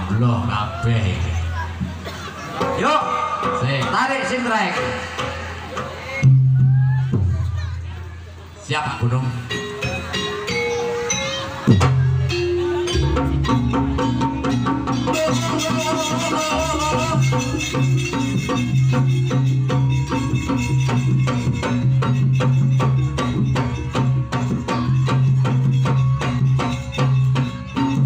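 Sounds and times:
gamelan percussion strokes: 0:01.2 - 0:07.2, 0:09.0 - 0:28.0
wavering melodic line: 0:09.5 - 0:28.0
sustained deep tone: 0:12.1 - 0:24.3.

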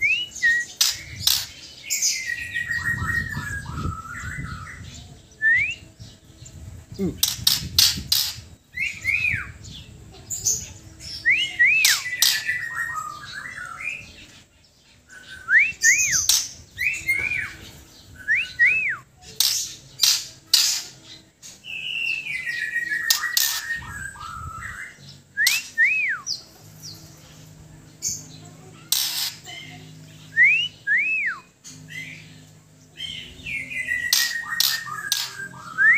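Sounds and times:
bird calling with clicks and whistles: 0:25.4 - 0:26.3, 0:34.0 - 0:35.9.

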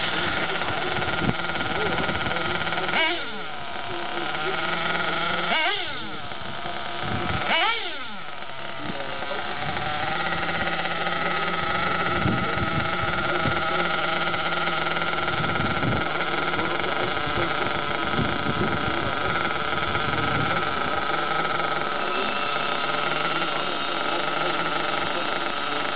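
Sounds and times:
nitro rc car engine revving: 0:00.0 - 0:25.9.

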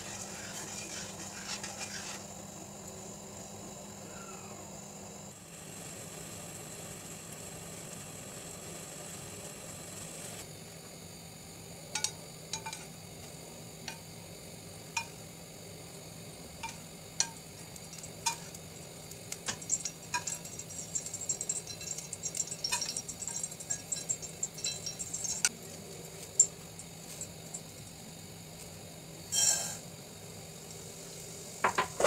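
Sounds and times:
pot simmering with hiss: 0:00.0 - 0:32.0
metal spoon clinking pot: 0:12.0 - 0:12.9, 0:15.0 - 0:15.2, 0:16.6 - 0:18.6, 0:19.4 - 0:25.5.

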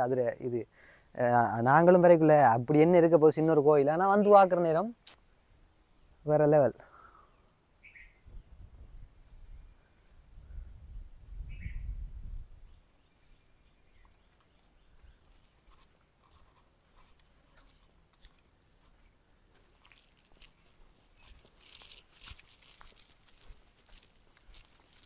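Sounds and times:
footsteps crunching on rocky dirt: 0:14.0 - 0:25.0.

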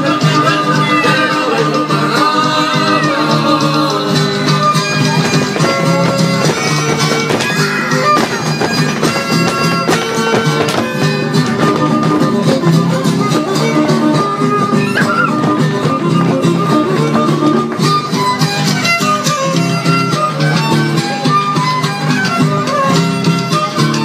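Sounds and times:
held melody line: 0:00.0 - 0:24.0
plucked strings: 0:00.0 - 0:24.0
percussive strikes: 0:04.0 - 0:20.6.

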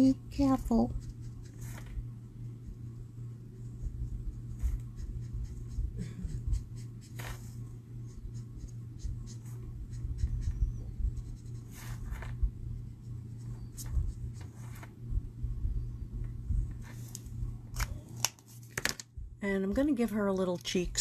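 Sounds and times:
steady low hum: 0:00.0 - 0:21.0
marker scratching on cardstock: 0:04.3 - 0:12.4.

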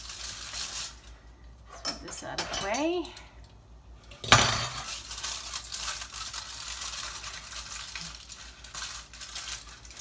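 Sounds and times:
kitchenware clinking on counter: 0:01.7 - 0:03.1, 0:04.1 - 0:05.0.

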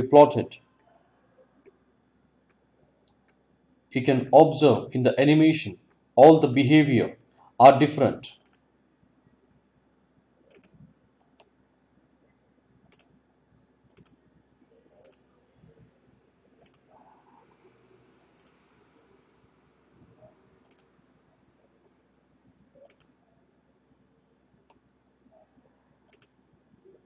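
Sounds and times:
computer mouse clicks: 0:02.4 - 0:03.4, 0:08.4 - 0:08.6, 0:10.5 - 0:11.5, 0:12.9 - 0:13.2, 0:13.9 - 0:14.2, 0:15.0 - 0:15.3, 0:16.6 - 0:17.0, 0:18.4 - 0:18.6, 0:20.7 - 0:21.0, 0:22.8 - 0:23.2, 0:26.0 - 0:26.4.

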